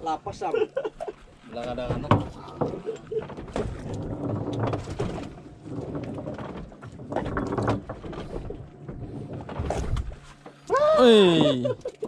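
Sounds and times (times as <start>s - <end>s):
low machinery hum: 0.0s - 12.0s
knocks and clatter on deck: 1.8s - 10.6s.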